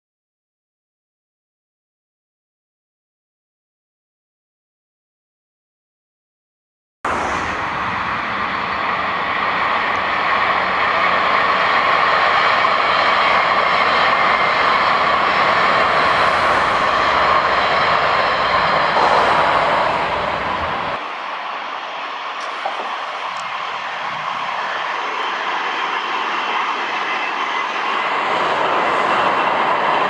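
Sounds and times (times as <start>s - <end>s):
train rolling on rails: 7.1s - 30.0s.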